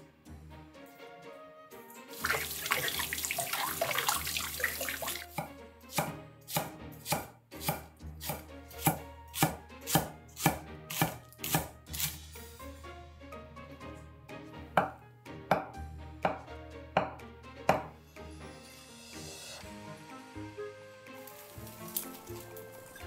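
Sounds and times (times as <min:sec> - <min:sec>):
knife slicing on wooden board: 0:05.3 - 0:12.2.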